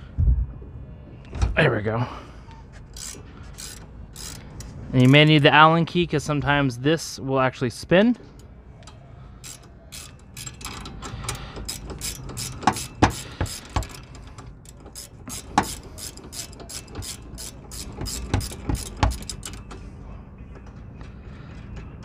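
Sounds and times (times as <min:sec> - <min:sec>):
ratcheting wrench clicking: 0:02.9 - 0:05.4, 0:08.4 - 0:19.8.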